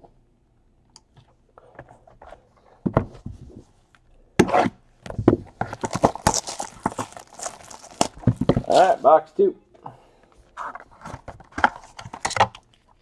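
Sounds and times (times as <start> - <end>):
cardboard scraping and rustling: 5.3 - 9.0.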